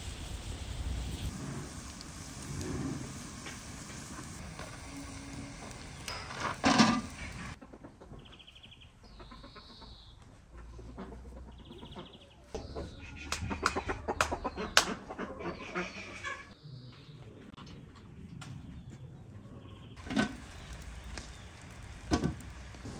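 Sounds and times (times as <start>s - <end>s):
chickens clucking: 3.1s - 16.6s.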